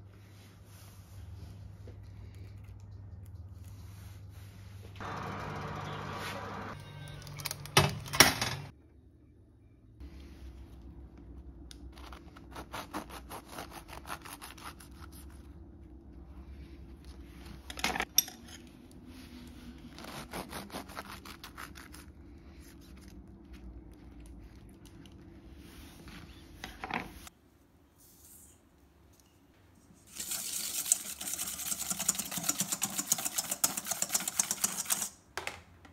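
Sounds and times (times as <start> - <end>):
oven humming: 4.9 - 8.7.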